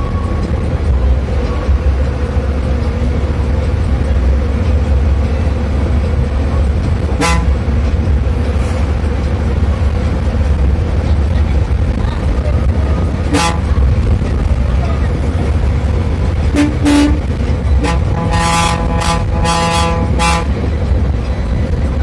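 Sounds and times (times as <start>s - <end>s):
bus engine and road drone: 0.0s - 22.0s
horn blast: 7.1s - 7.7s, 13.2s - 14.0s, 16.5s - 20.6s.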